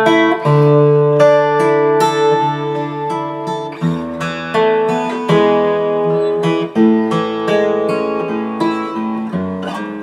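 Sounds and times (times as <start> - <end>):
amplified acoustic guitar chords: 0.0 - 10.0.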